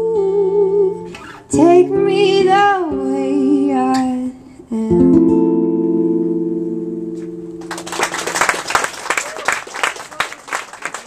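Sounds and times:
women singing in harmony: 0.0 - 5.1
guitar chord strummed: 4.8 - 8.2.

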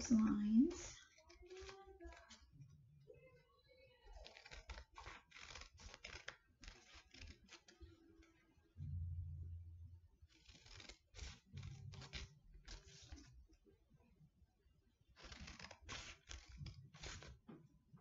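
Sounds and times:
scissors snipping paper: 0.0 - 2.5, 4.0 - 8.4, 10.3 - 13.5, 15.1 - 17.5.

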